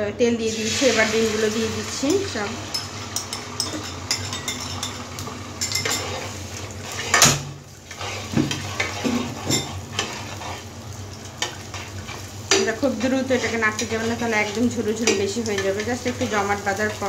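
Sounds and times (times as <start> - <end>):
eggs sizzling in hot oil: 0.4 - 17.0
spatula scraping pan: 1.9 - 17.0.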